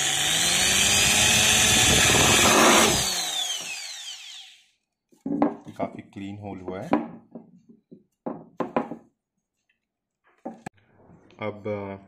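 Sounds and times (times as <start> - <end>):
drill bit grinding through tin: 0.0 - 4.6
drill motor winding down: 0.0 - 4.8.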